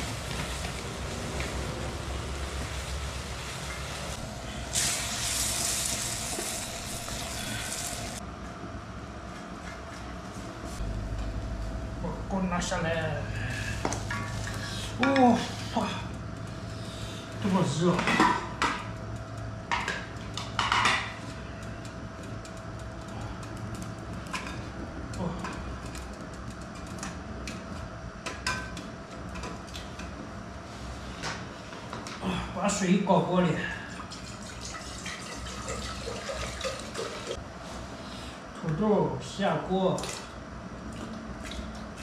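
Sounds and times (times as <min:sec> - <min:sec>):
beef sizzling in a wok: 0:00.0 - 0:08.2
fire crackling: 0:00.0 - 0:08.2, 0:18.9 - 0:31.5
low steady rumble: 0:00.0 - 0:31.6.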